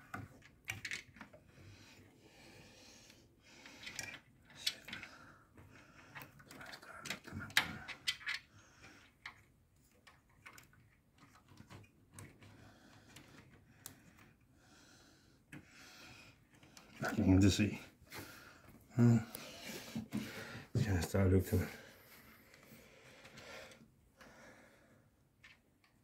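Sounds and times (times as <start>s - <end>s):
cables rustling: 0.0s - 14.5s.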